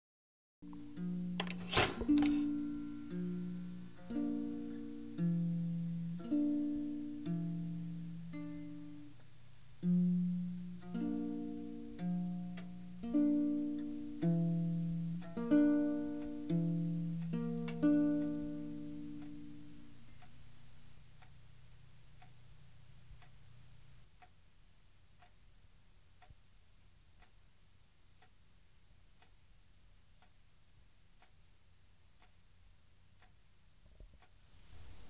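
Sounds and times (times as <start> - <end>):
plucked string notes: 0.6 - 9.1, 9.8 - 20.1
wall clock ticking: 0.7 - 35.0.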